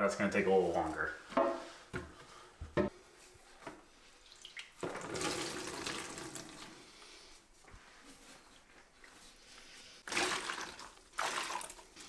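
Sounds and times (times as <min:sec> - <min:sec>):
water trickling into a bucket: 0:04.2 - 0:06.8, 0:10.0 - 0:12.0.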